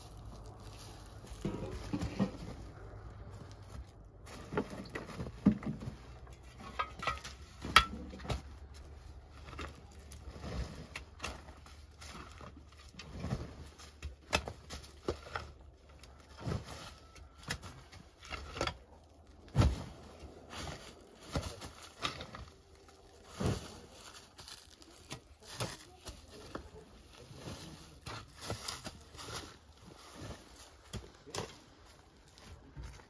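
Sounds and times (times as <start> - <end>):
dirt clods pattering: 0.0 - 5.3.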